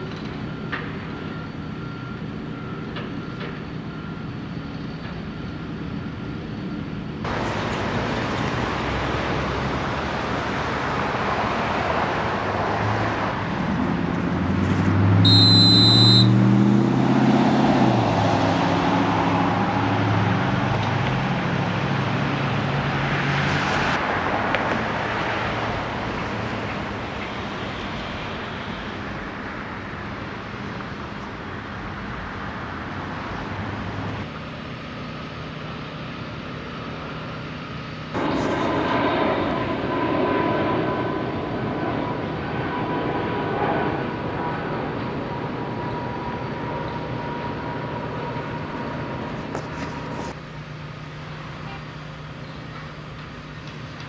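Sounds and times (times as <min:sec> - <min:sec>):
pitched engine drone: 0:00.0 - 0:54.0
rumble of engines and traffic: 0:00.0 - 0:54.0
short high electronic beep: 0:15.3 - 0:16.4.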